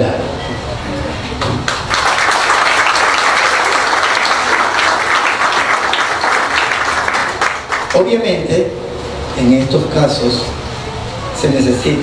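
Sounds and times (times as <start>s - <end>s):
audience applauding: 1.6s - 8.1s.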